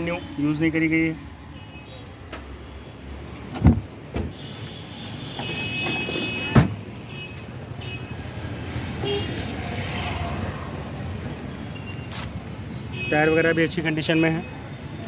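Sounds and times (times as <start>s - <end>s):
background traffic hum: 0.0s - 15.0s
car boot lid slamming: 5.8s - 6.8s.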